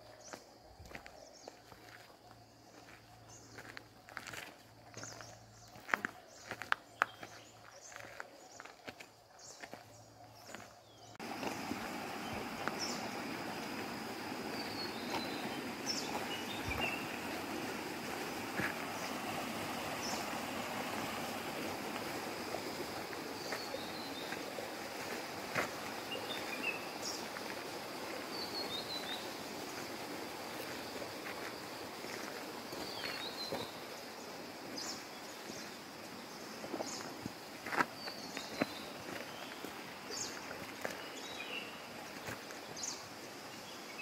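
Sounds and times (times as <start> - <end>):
background hiss: 0.0 - 44.0.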